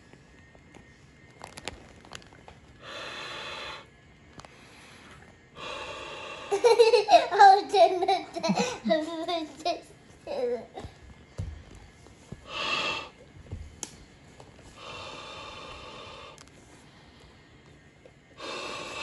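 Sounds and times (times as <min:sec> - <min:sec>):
steady airy noise: 0:00.0 - 0:19.0.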